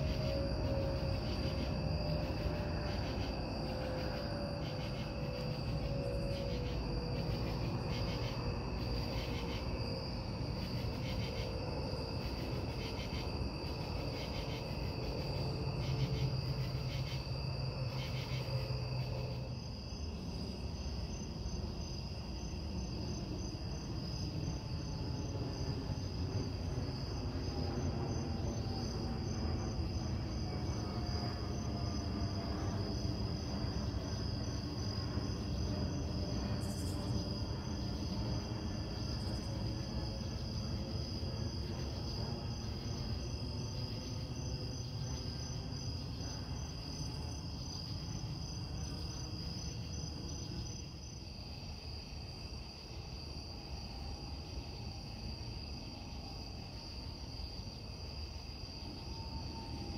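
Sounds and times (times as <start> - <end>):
faint falling whine: 0.0 - 21.1
continuous low rumble: 0.0 - 59.9
crickets trilling: 0.0 - 59.9.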